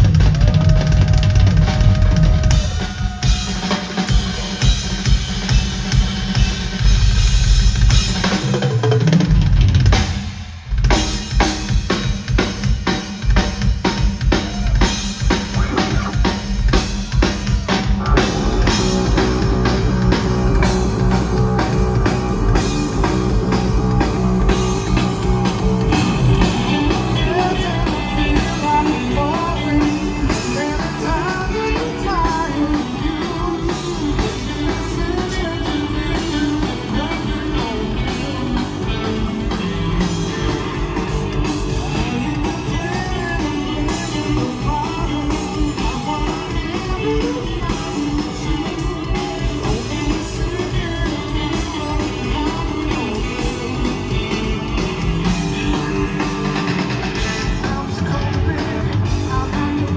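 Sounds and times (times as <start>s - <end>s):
bass guitar: 0.0s - 59.9s
drum kit: 0.0s - 59.9s
electric guitar: 0.0s - 59.9s.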